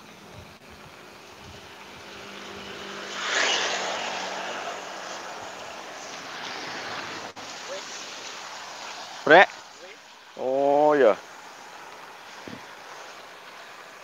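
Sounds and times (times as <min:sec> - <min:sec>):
faint engine: 0:00.0 - 0:08.2
tyres hissing on wet asphalt: 0:00.0 - 0:14.0.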